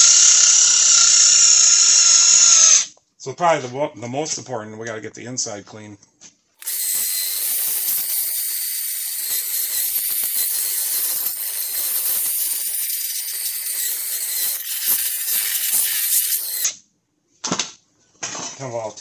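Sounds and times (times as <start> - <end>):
power tool brush scraping metal: 6.6 - 16.7.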